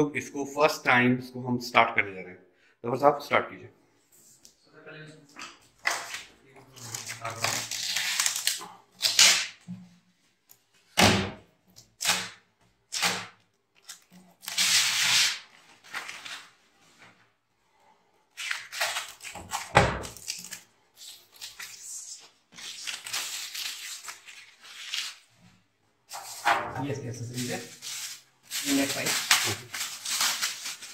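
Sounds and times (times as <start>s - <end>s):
plastic film crinkling and tearing: 5.8s - 9.6s, 11.8s - 16.8s, 18.3s - 26.4s, 27.1s - 30.9s.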